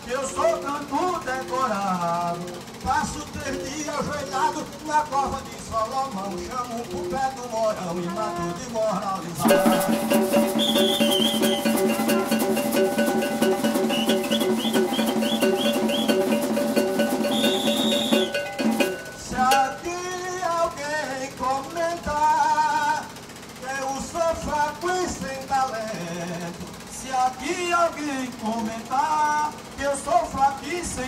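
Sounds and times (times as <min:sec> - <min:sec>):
man singing into microphone: 0:00.0 - 0:09.8, 0:19.1 - 0:31.0
fast percussion band: 0:00.0 - 0:31.0
held horn notes: 0:09.5 - 0:19.8.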